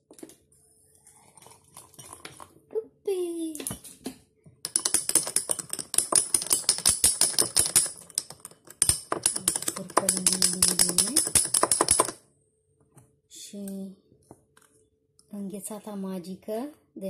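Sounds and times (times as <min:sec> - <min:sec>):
metal spoon clinking against glass: 0:04.7 - 0:12.2.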